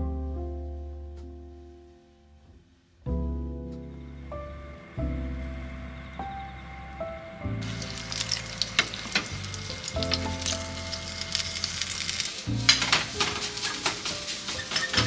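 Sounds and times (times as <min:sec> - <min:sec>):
soft background music: 0:00.0 - 0:15.0
food sizzling in frying pan: 0:07.6 - 0:15.0.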